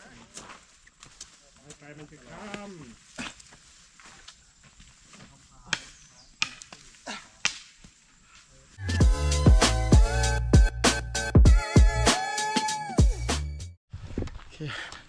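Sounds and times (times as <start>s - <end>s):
footsteps on dry dirt: 0.0s - 7.1s
music with heavy bass beat: 8.8s - 13.7s.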